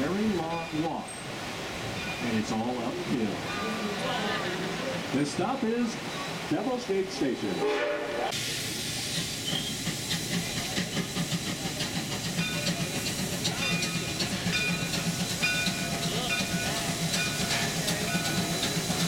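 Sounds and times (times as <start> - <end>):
steam hissing: 7.4 - 19.0.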